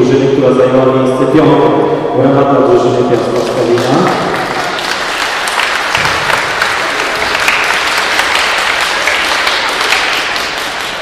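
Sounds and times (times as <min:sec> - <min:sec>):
crowd applauding: 0:03.2 - 0:11.0.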